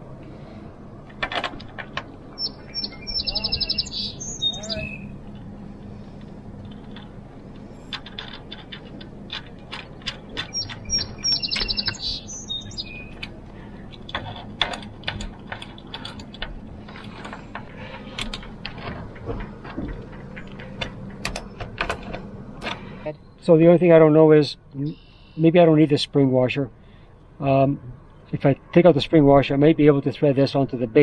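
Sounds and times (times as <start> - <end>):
bird chirping: 2.3 - 6.1, 10.3 - 13.9, 24.7 - 25.5.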